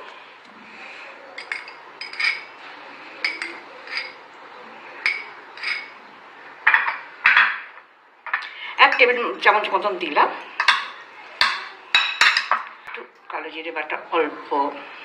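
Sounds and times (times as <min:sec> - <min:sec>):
spoon clinking on ceramic bowl: 0:01.4 - 0:02.5, 0:03.2 - 0:04.2, 0:05.0 - 0:06.0, 0:10.6 - 0:12.7
spoon clattering: 0:01.4 - 0:04.2, 0:05.0 - 0:09.3, 0:10.4 - 0:13.0.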